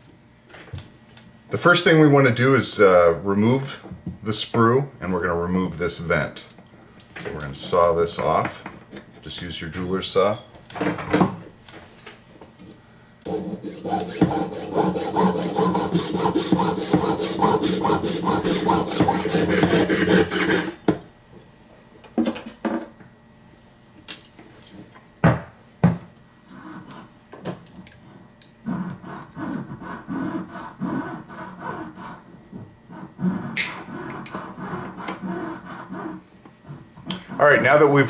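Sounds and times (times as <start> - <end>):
saw cutting metal: 13.3 - 20.8.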